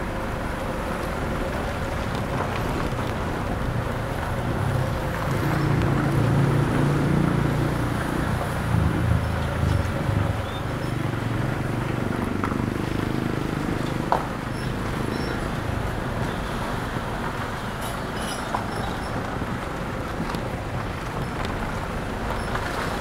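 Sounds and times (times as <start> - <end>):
car engine and tyre noise: 0.0 - 23.0.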